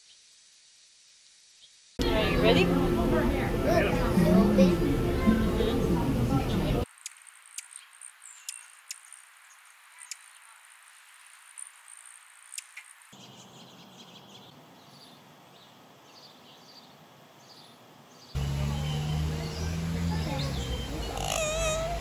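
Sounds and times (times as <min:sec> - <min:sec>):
faint outdoor hiss: 0:00.0 - 0:22.0
sharp high ticks: 0:06.9 - 0:09.3, 0:11.3 - 0:13.0
soft high bird chirps: 0:13.1 - 0:22.0.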